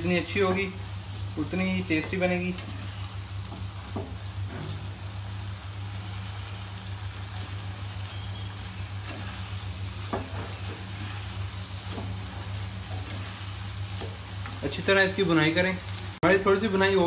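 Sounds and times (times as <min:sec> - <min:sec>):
lentils sizzling in a pan: 0:00.0 - 0:17.0
steady low hum: 0:00.0 - 0:17.0
spatula scraping a pan: 0:07.3 - 0:14.6.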